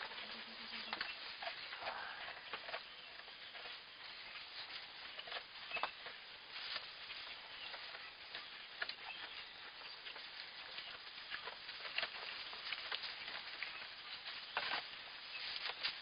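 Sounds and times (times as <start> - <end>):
hay rustling under hooves: 0.0 - 16.0.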